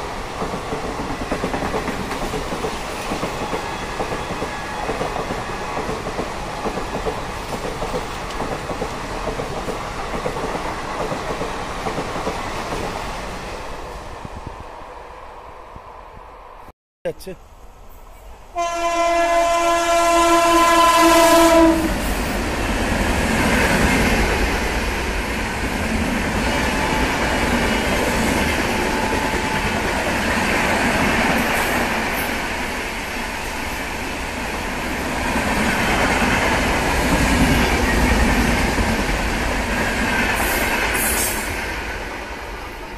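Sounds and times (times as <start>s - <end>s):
train wheels on rails: 0.0s - 15.4s, 20.5s - 42.9s
locomotive horn blast: 18.5s - 22.0s.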